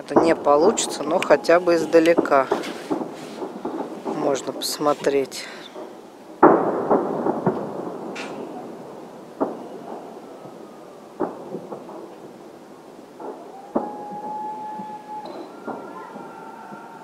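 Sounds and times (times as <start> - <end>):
distant firework bangs: 0.0 - 17.0
firework pops: 0.1 - 8.8, 9.4 - 10.1, 11.2 - 12.3, 13.2 - 16.9
firework whistling: 0.2 - 6.0, 13.2 - 17.0.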